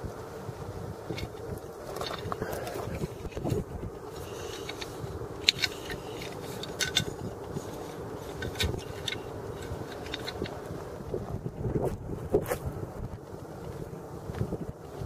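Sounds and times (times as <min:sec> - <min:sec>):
steady low background noise: 0:00.0 - 0:15.0
handling clicks and scrapes: 0:00.9 - 0:11.0.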